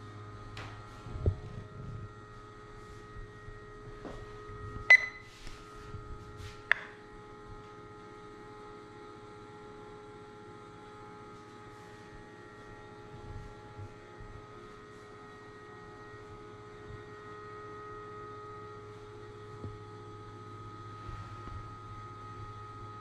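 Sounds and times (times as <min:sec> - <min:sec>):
steady hum: 0:00.0 - 0:23.0
short high beep: 0:04.9 - 0:05.3.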